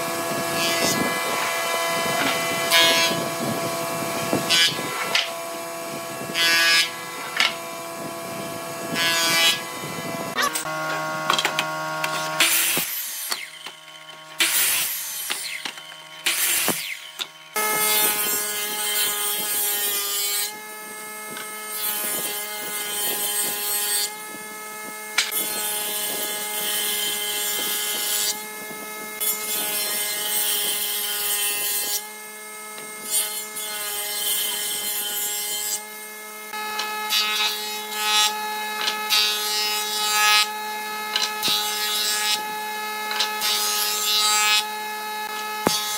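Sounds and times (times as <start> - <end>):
woodworking machine motor hum: 0.0 - 19.8
mitre saw cutting board: 0.0 - 45.9
boards being ripped and planed: 0.3 - 35.8, 36.6 - 45.9.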